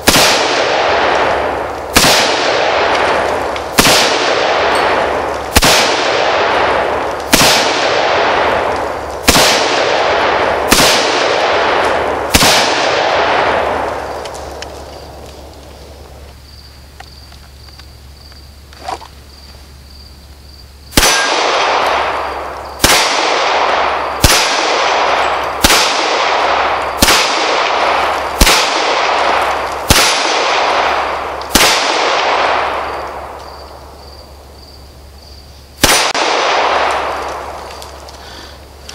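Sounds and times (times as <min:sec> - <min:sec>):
handgun shots: 0:21.0 - 0:22.0.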